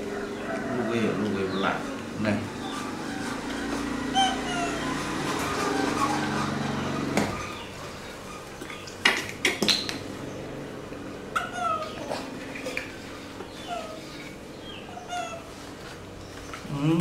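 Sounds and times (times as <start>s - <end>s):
baby monkey squeaky calls: 2.5s - 8.8s, 11.4s - 12.2s, 13.6s - 14.2s, 14.8s - 15.6s.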